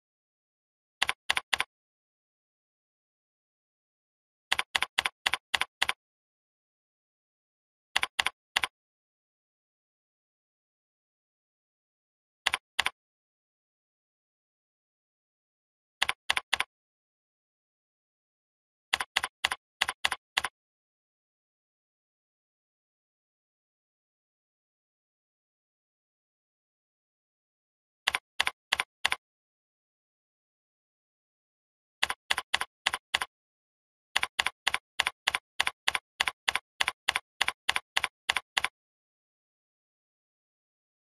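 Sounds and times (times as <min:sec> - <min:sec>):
keyboard keystrokes clicking: 0:01.0 - 0:01.7, 0:04.5 - 0:06.0, 0:08.0 - 0:08.7, 0:12.5 - 0:13.0, 0:16.0 - 0:16.7, 0:18.9 - 0:20.5, 0:28.1 - 0:29.2, 0:32.0 - 0:33.3, 0:34.2 - 0:38.7.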